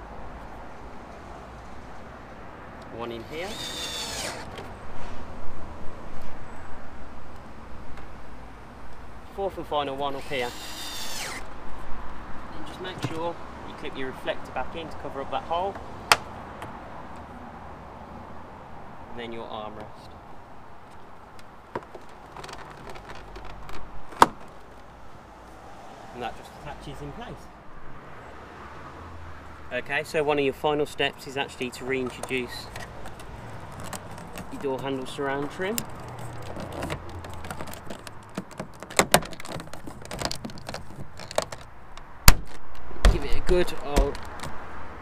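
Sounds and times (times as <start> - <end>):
plastic clicks and rubs: 20.9 - 25.0, 32.0 - 44.6.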